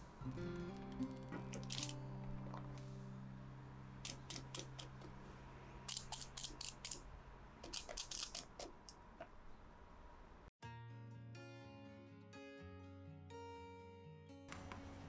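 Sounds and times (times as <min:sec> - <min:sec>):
crisp clicks and crackles: 0:01.5 - 0:02.6.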